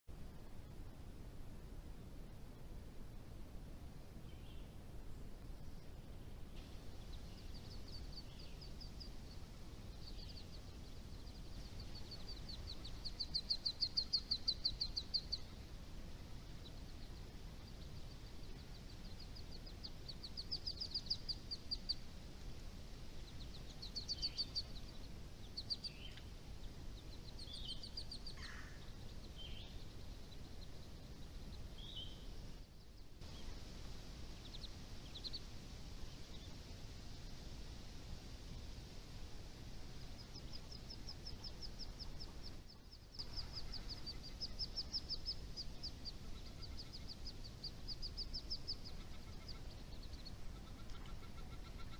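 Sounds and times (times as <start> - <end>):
low background hiss: 0.1 - 51.9
songbirds trilling: 5.8 - 36.8, 39.9 - 51.9
bird chirps and calls: 10.0 - 15.7, 27.1 - 32.3, 40.2 - 51.9.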